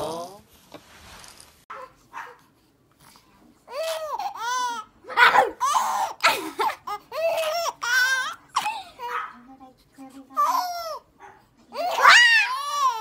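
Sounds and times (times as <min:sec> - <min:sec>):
baby squealing and babbling: 0:03.7 - 0:06.2, 0:07.1 - 0:08.4, 0:11.7 - 0:13.0.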